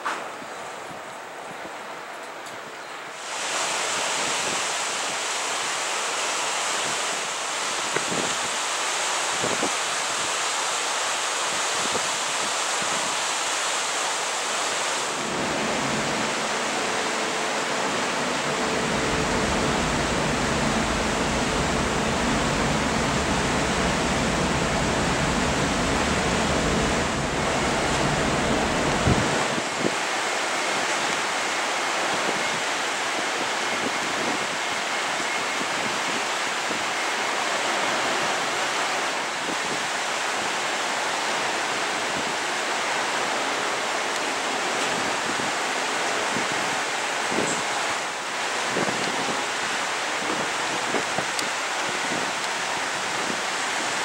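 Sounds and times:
wind rushing on microphone: 6.8 - 8.7, 9.3 - 10.4, 11.5 - 13.3, 17.8 - 31.4, 32.0 - 37.0, 38.0 - 40.5, 48.6 - 54.0
faint hum: 15.2 - 29.5
low rumble: 15.2 - 29.6.

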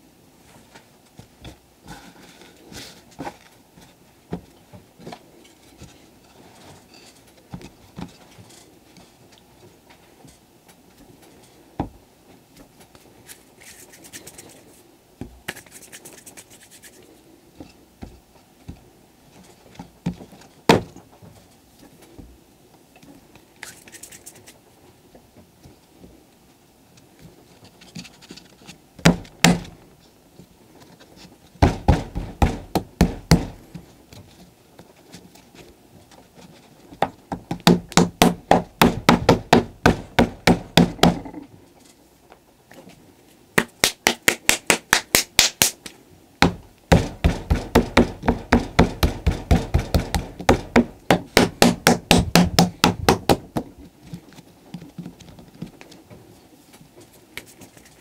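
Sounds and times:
hand slapping clay: 43.6 - 46.6.

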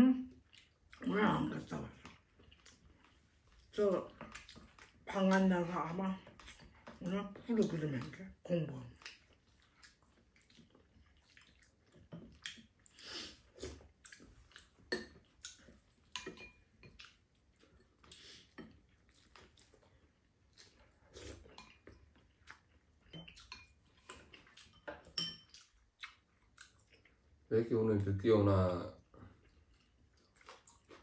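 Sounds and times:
chewing: 0.3 - 28.2, 29.0 - 31.0
slurping soup: 12.5 - 14.5.

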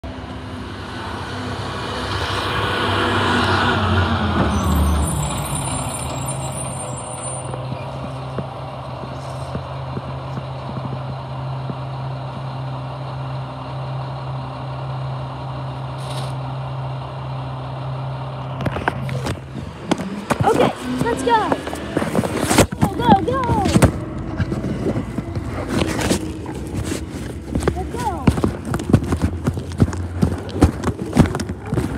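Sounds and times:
diesel truck engine idling: 0.0 - 31.9
rustles: 18.8 - 31.9.

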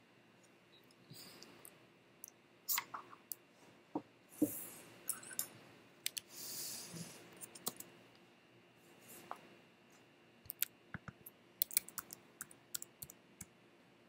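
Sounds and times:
computer mouse clicks and taps: 7.4 - 7.9, 10.5 - 13.5.

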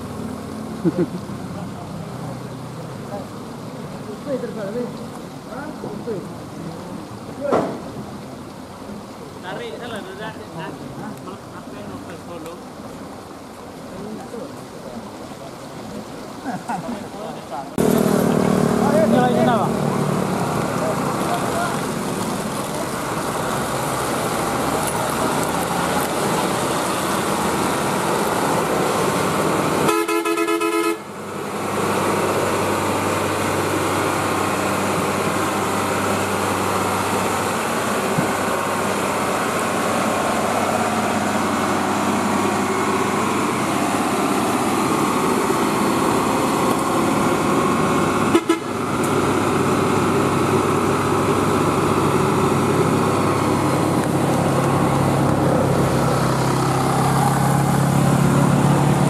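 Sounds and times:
vehicle horn: 29.8 - 31.1, 48.3 - 48.8
diesel truck engine under load: 31.2 - 59.0.

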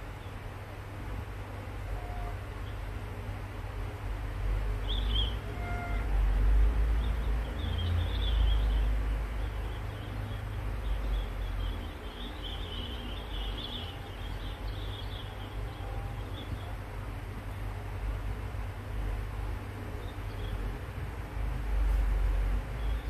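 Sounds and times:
high irregular chirping: 7.0 - 16.8.

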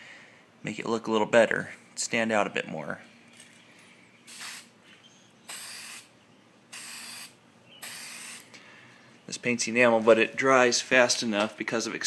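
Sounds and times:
aerosol spray can hissing: 4.3 - 4.7, 5.5 - 6.1, 6.7 - 8.5.

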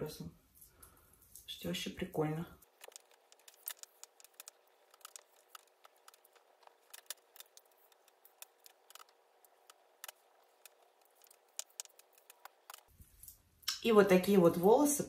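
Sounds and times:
brush bristles crackling through hair: 2.3 - 13.5.

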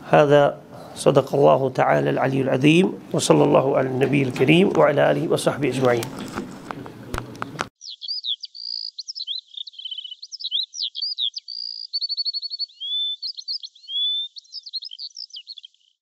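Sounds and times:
songbird chirps and trills: 7.6 - 16.0.

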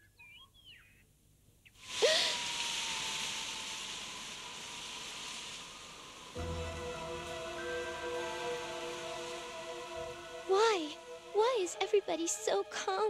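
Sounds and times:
bird chirps: 0.0 - 1.8
gust of wind: 1.8 - 11.6
thin steady tone: 2.0 - 13.0.

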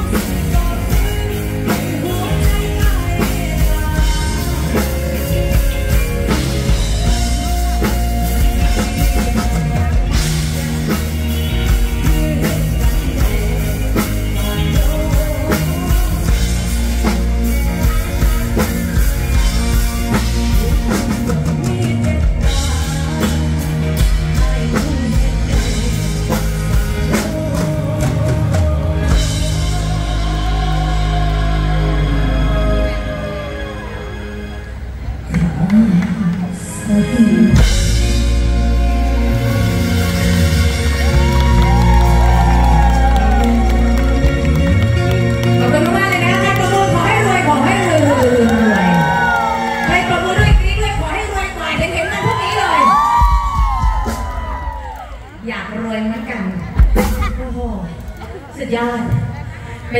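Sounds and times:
woman singing into a microphone: 0.0 - 6.1, 11.4 - 19.6, 20.8 - 33.4
live band with drum kit: 0.0 - 59.9.

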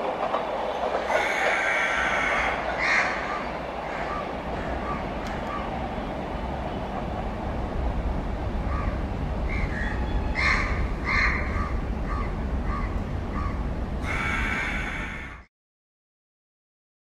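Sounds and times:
freight train rumbling: 0.0 - 15.5
crow cawing: 1.1 - 5.7, 8.7 - 15.5.

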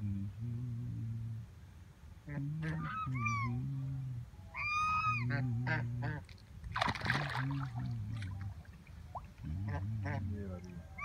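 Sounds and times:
wings flapping and water splashing: 6.2 - 9.5.

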